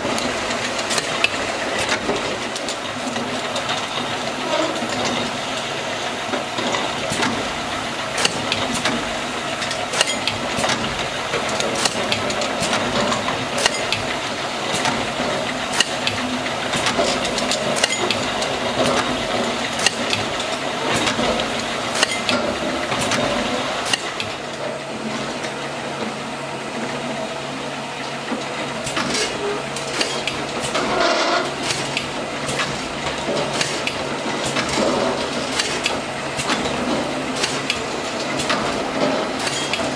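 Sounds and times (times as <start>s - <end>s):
conveyor machine humming: 0.0s - 39.9s
cans knocking on conveyor: 8.2s - 24.4s.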